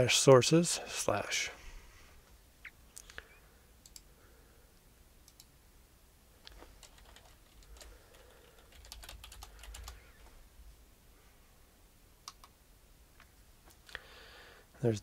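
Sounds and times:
faint keyboard typing: 2.9 - 4.2, 5.2 - 5.5, 6.4 - 10.3, 12.2 - 12.6.

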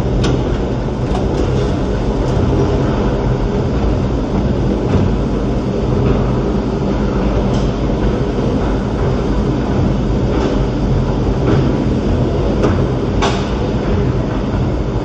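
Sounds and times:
tram car rumbling on track: 0.0 - 15.0.

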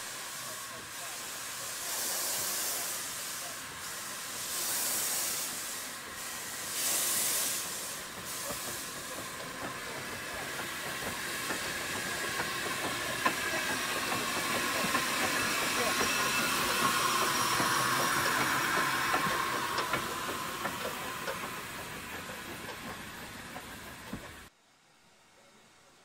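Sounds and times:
steam locomotive hissing steam: 0.0 - 24.5
clicks and knocks from train wheels: 7.4 - 24.5.

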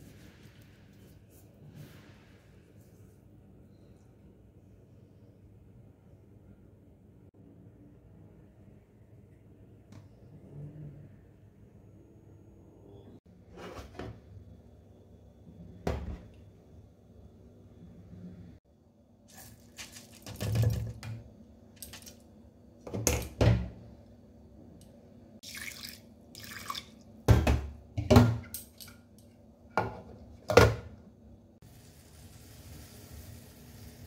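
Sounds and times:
water splashing and pouring: 19.3 - 20.8, 25.4 - 27.0.

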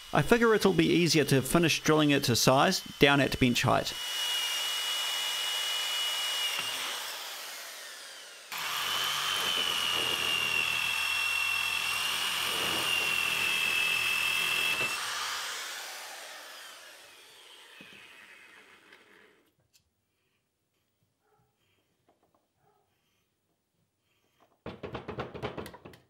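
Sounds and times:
electric drill whine: 0.0 - 19.4.

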